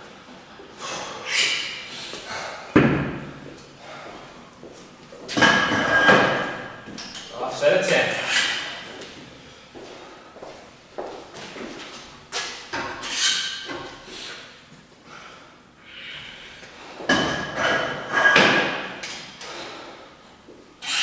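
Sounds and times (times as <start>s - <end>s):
weight plates clanking: 5.3s - 7.3s.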